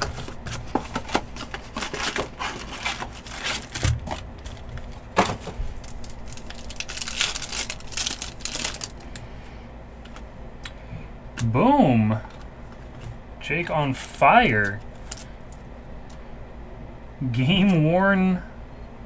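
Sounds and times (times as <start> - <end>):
card pack wrappers crinkling: 0.0 - 9.3, 14.5 - 15.6.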